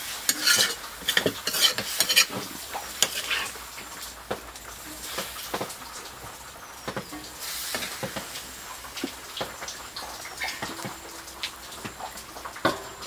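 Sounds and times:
steel plate clanking on wok: 0.0s - 3.5s, 10.4s - 13.0s
curry sizzling in a wok: 0.0s - 13.0s.

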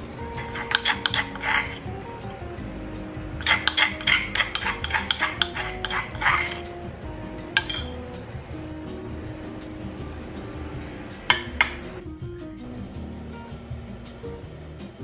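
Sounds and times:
spoon scraping inside stone mortar: 0.3s - 1.9s, 3.4s - 6.7s, 7.6s - 7.9s.

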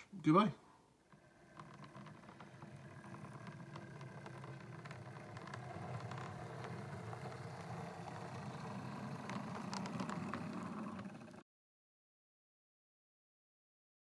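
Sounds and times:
model train motor hum: 1.0s - 11.4s.

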